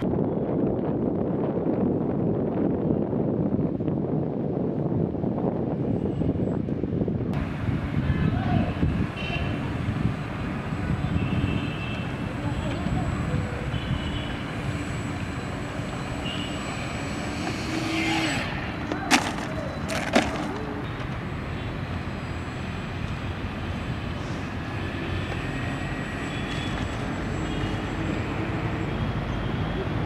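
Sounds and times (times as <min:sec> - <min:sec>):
wind noise: 0:00.0 - 0:30.0
small electric motor and propeller: 0:14.5 - 0:20.8.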